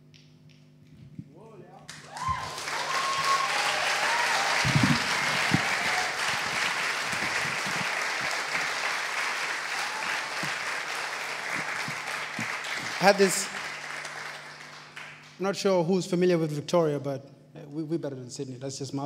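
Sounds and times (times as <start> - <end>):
audience applauding: 1.9 - 15.4.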